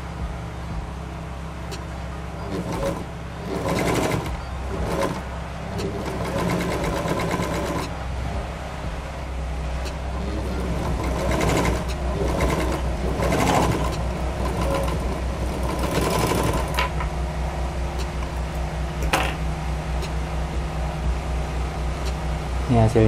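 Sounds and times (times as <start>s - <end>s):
overlock machine sewing: 2.4s - 8.0s, 10.1s - 16.9s.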